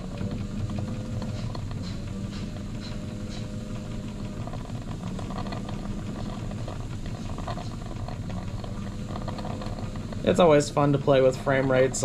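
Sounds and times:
toy steam engine running: 0.0s - 12.0s.

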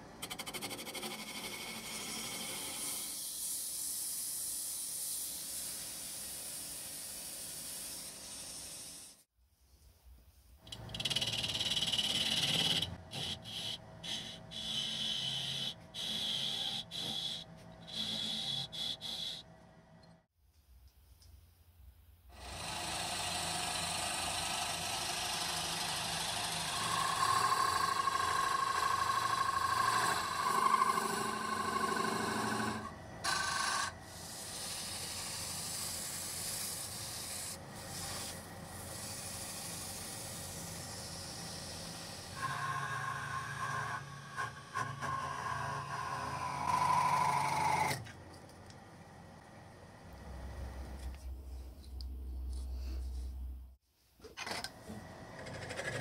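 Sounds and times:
chisel scraping spinning wood: 0.2s - 3.2s, 10.7s - 19.5s, 22.4s - 48.1s, 55.3s - 56.0s
wood lathe humming: 10.8s - 19.5s, 22.4s - 48.0s.

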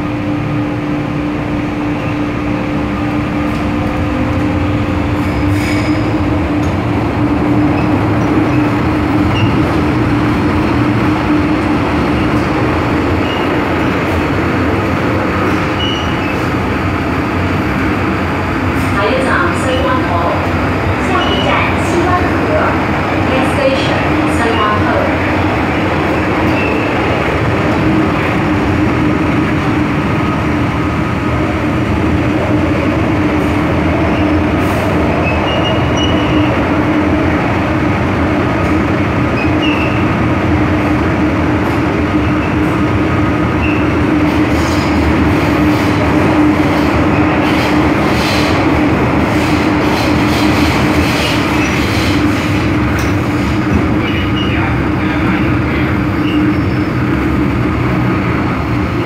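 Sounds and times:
metro car rolling noise: 0.0s - 59.0s
short high squeaks: 15.8s - 16.4s.

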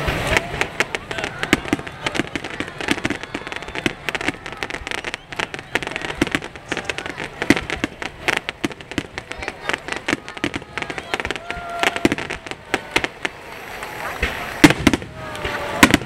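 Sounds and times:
fireworks bangs and crackles: 0.0s - 16.0s.

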